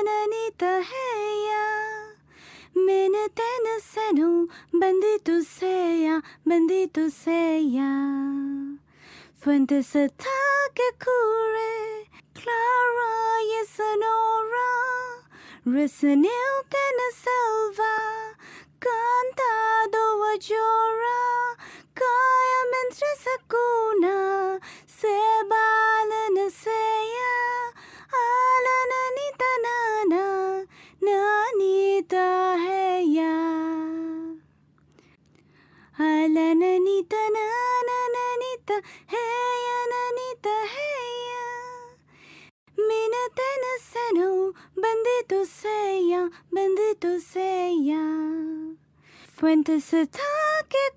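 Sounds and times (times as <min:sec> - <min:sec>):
woman singing slow melody: 0:00.0 - 0:34.5, 0:35.9 - 0:42.0, 0:42.7 - 0:50.9.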